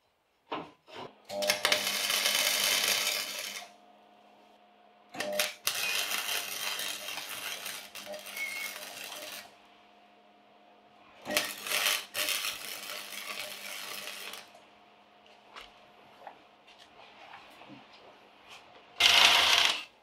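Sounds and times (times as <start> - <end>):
crackling hissing welding arc: 1.5 - 3.7, 5.3 - 9.5, 11.3 - 14.6.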